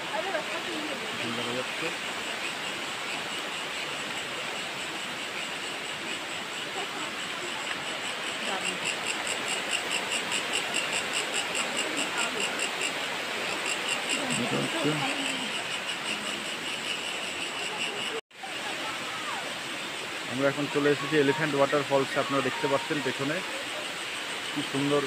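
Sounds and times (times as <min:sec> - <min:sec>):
insect pulsing call: 0:00.0 - 0:25.0
waterfall rushing: 0:18.4 - 0:25.0.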